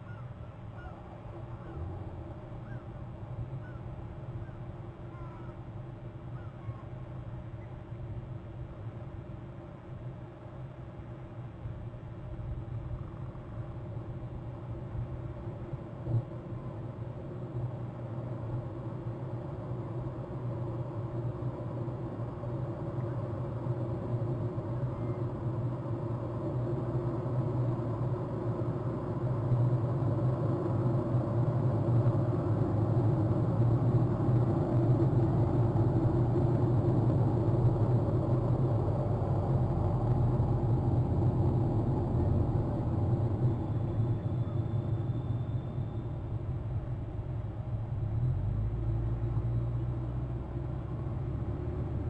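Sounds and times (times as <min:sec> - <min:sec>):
low rumble: 0:25.7 - 0:52.0.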